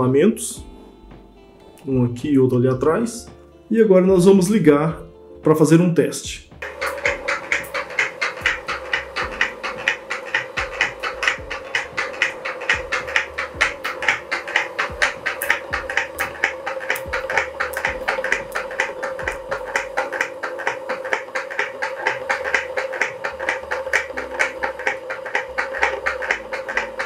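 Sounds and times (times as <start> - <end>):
motor humming: 6.6 - 27.0
rapid mechanical knocking: 6.6 - 27.0.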